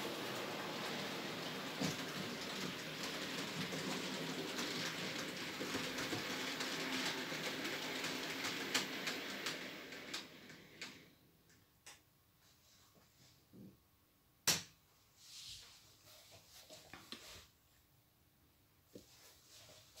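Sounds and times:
wheels clicking over rail joints: 0.0 - 11.0
model train rolling hiss: 0.0 - 11.1.

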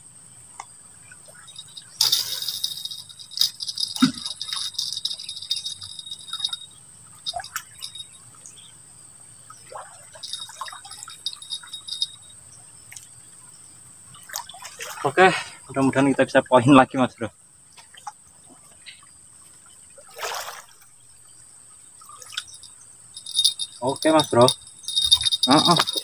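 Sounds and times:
fishing reel rattling clicks: 1.6 - 6.7, 10.2 - 12.2, 23.2 - 26.0.

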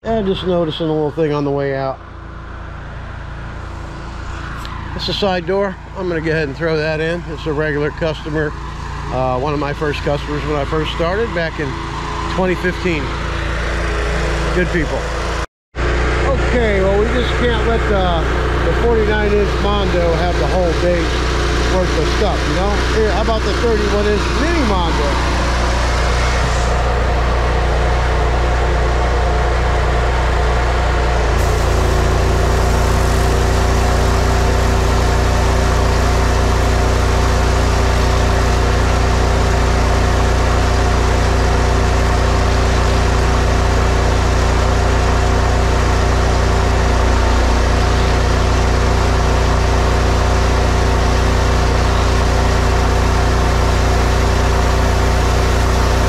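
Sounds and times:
pressure washer engine running: 0.0 - 56.0
water spraying hiss on concrete: 31.4 - 38.8.

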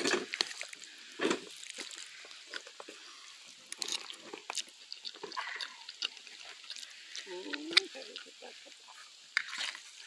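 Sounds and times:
person chewing food: 0.0 - 9.9
small mouth clicks: 3.7 - 8.3.

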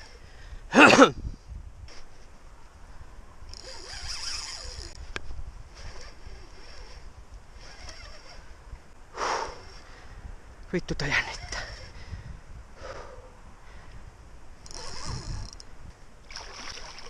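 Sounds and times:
fishing reel buzzing: 3.5 - 8.6, 11.4 - 12.0, 14.6 - 15.7.

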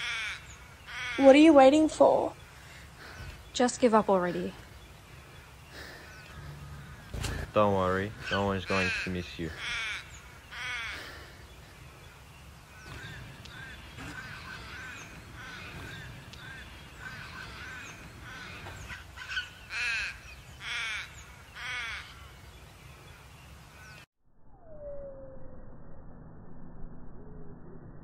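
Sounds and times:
crows cawing: 0.0 - 3.5, 4.2 - 22.6, 23.7 - 24.0.

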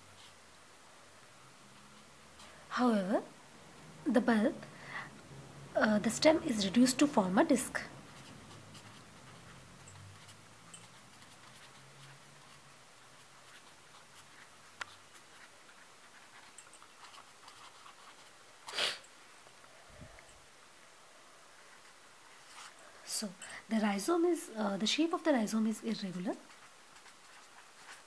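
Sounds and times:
marker pen scratching paper: 6.2 - 18.8, 24.1 - 28.0.

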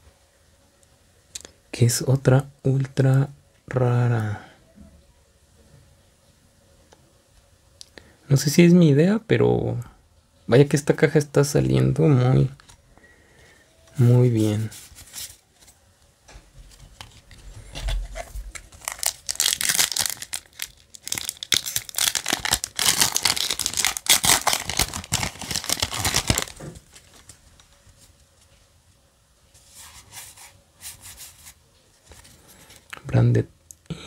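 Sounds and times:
cards rustling: 13.9 - 15.8, 16.7 - 28.2
foil wrapper tearing and crinkling: 16.9 - 27.7.

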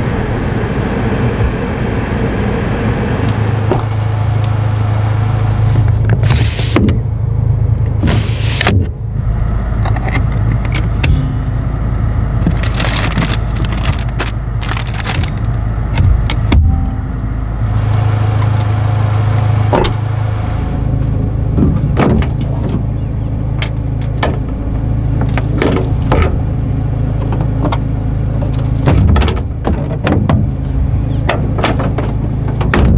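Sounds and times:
steady low hum: 0.0 - 32.9
tailgate being lowered: 9.8 - 18.7, 19.4 - 32.9.

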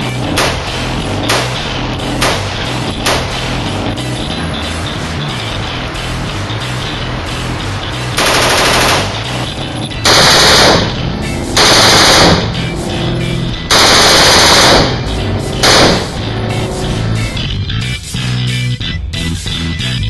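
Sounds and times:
carbine full-auto bursts: 8.2 - 9.4, 10.0 - 11.0, 11.6 - 12.5, 13.7 - 15.0, 15.6 - 16.2.

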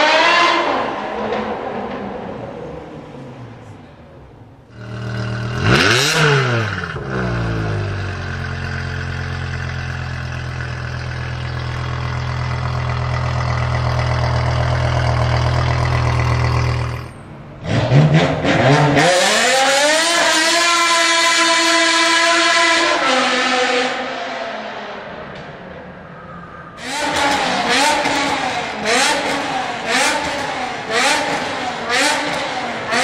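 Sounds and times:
car engine idling: 4.3 - 17.5
car engine revving: 4.7 - 25.2, 26.8 - 33.0.

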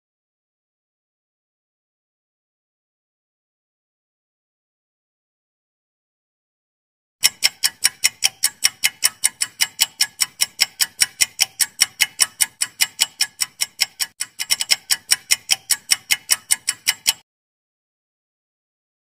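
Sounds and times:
countdown timer ticking: 7.2 - 17.2.

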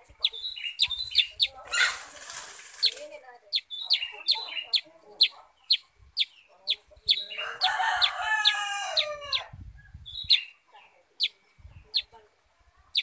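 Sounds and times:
rooster crowing: 7.4 - 9.5.

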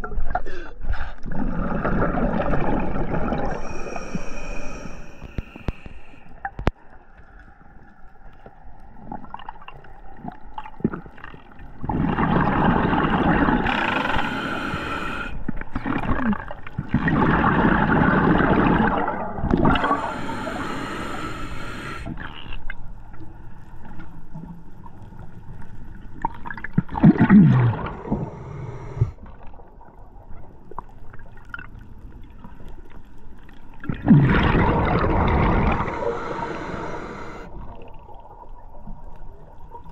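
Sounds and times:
exhaled bubbles gurgling: 1.2 - 6.7, 8.9 - 22.8, 25.9 - 39.9
regulator inhale hiss: 3.5 - 6.4, 13.6 - 15.5, 19.7 - 22.1, 28.0 - 29.2, 35.7 - 37.6.

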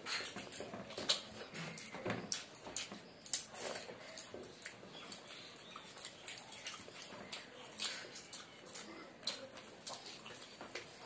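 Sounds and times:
wet chewing and lip-smacking: 0.0 - 11.0.

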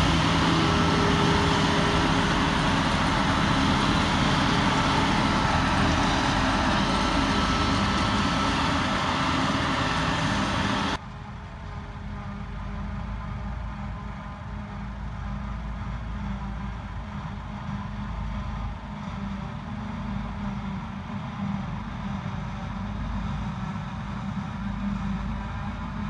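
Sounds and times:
farm machinery engine drone: 0.0 - 26.0.

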